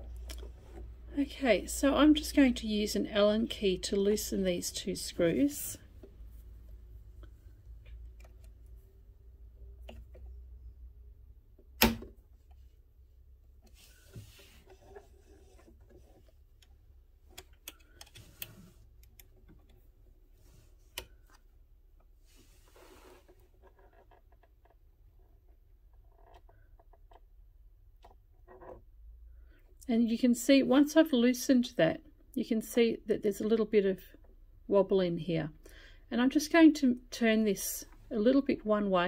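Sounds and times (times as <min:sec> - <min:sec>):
soft handling noises: 0:00.0 - 0:02.4, 0:03.5 - 0:10.9, 0:12.2 - 0:27.2.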